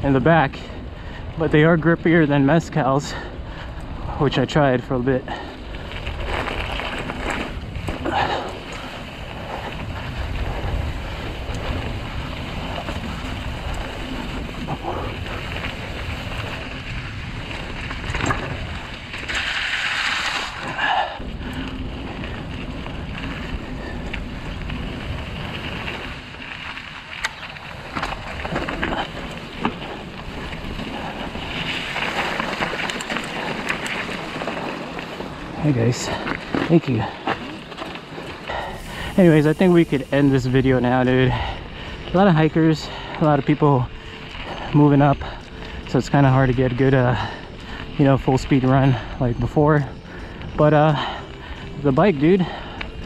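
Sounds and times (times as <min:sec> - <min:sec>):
bike rattles and clicks: 0:00.0 - 0:53.0
bike tyres rolling on dirt: 0:00.0 - 0:53.0
wind buffeting microphone: 0:00.0 - 0:53.0.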